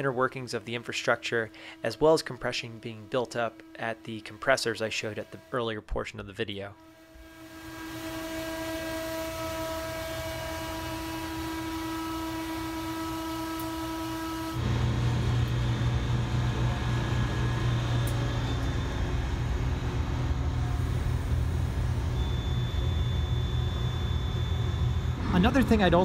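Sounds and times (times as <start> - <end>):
gas compressor whine: 1.1 - 5.6, 6.8 - 26.0
low steady rumble: 14.6 - 26.0.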